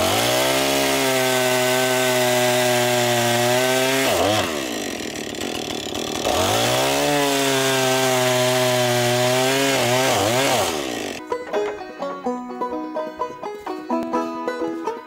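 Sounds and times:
chainsaw cutting a log: 0.0 - 11.2.

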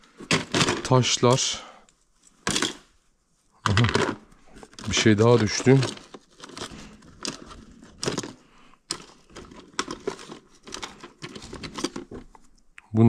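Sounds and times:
hands rummaging through belongings: 0.0 - 12.7
packaging crinkling: 3.7 - 12.6.

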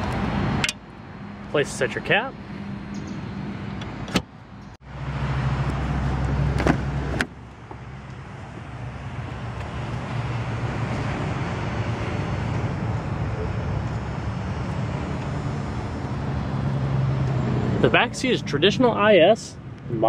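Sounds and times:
outdoor background noise: 0.0 - 20.0
car door latch clicking: 3.8 - 4.3.

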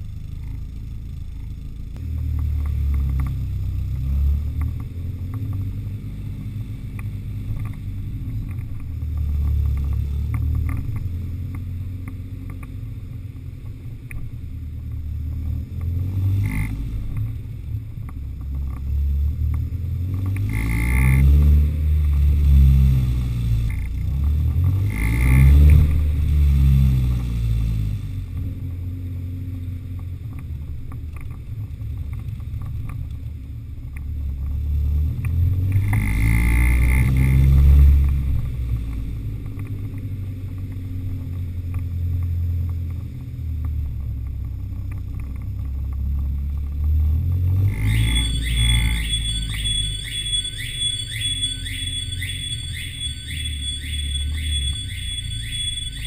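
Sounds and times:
car engine idling and revving: 0.0 - 56.0.

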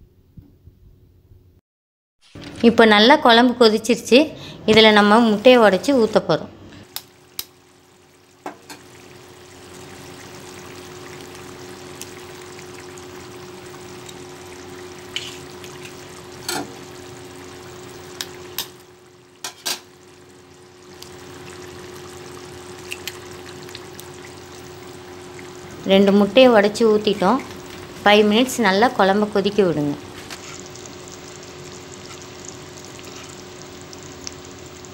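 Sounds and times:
gravy bubbling in a pan: 6.8 - 34.9
eggs cracking: 22.6 - 24.4.

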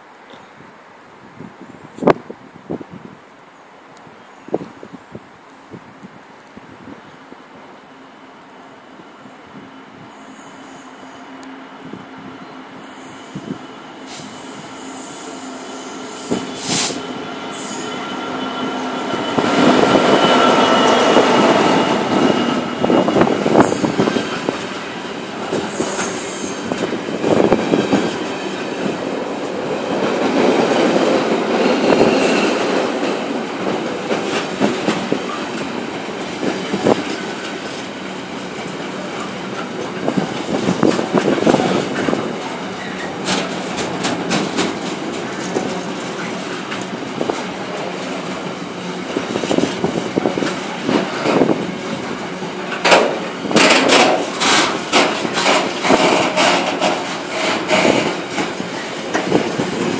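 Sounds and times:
diesel locomotive engine: 0.0 - 59.9
high wheel squeals: 10.0 - 11.4, 12.4 - 24.9, 25.5 - 27.5
train wagons rumbling: 11.2 - 59.9
wheel clicks over rail joints: 52.7 - 59.4.

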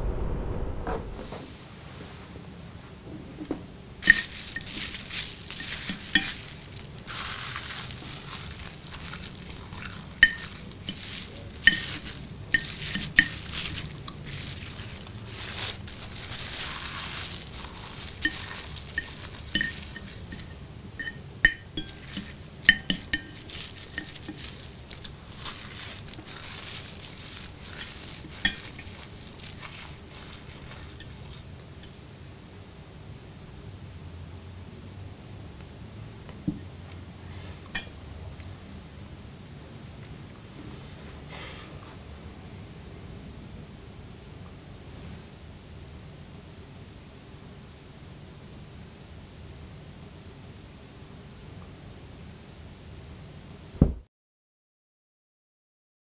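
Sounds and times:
plastic bag crinkling: 4.0 - 31.5.

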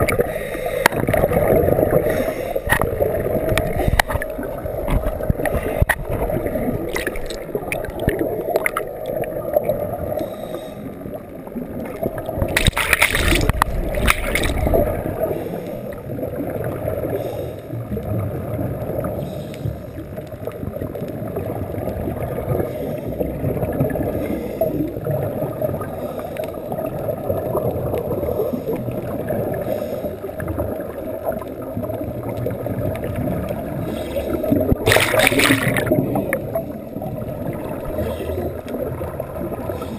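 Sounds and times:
underwater rushing water: 0.0 - 39.9
bubbling bursts: 0.9 - 10.0, 11.6 - 15.3, 30.7 - 39.8.

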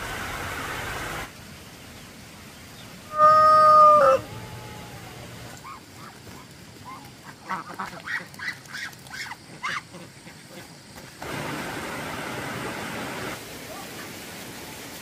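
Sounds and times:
ducks quacking softly: 6.8 - 10.8.

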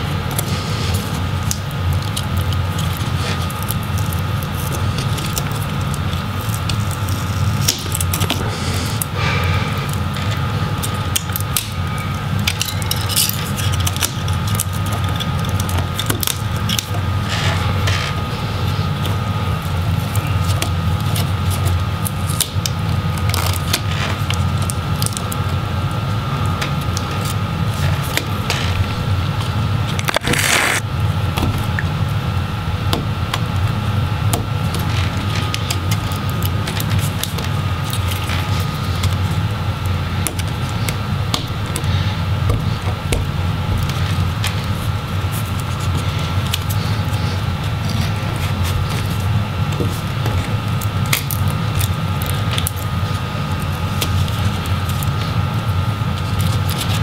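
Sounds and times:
steady low hum: 0.0 - 57.0
scratchy rasp: 30.1 - 30.8.

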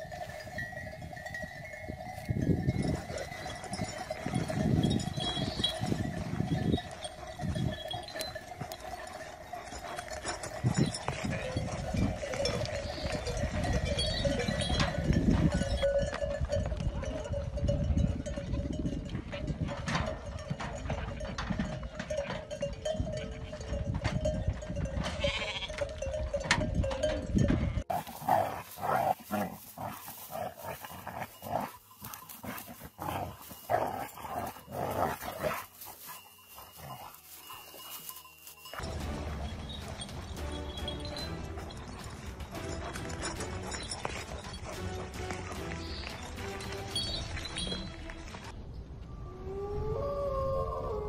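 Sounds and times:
sheep bleating: 25.1 - 25.9.

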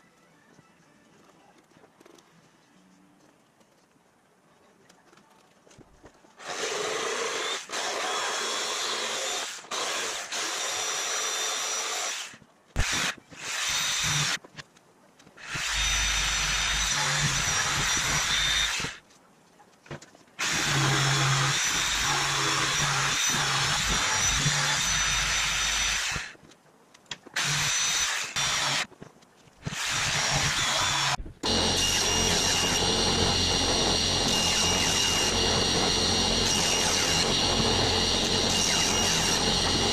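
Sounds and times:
jigsaw cutting board: 20.4 - 26.3, 29.6 - 39.9
power tool humming: 20.4 - 26.3, 29.6 - 39.9.

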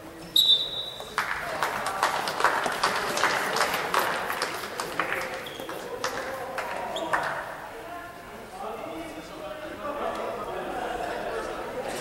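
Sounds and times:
people clapping: 1.0 - 7.5.

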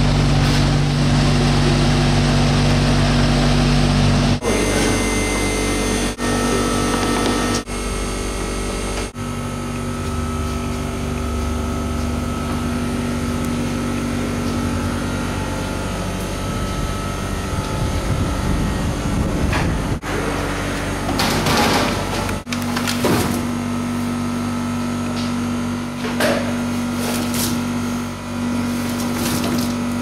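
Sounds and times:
electric machinery humming: 0.0 - 30.0
low rumble: 14.6 - 20.1.

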